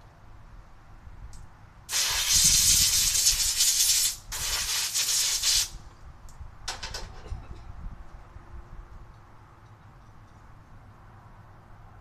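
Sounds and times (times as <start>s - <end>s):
hissing spray: 1.9s - 5.8s.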